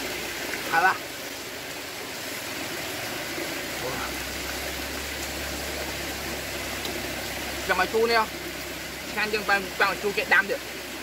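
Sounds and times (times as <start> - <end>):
heavy rain falling: 0.0 - 11.0
low steady hum: 2.5 - 11.0.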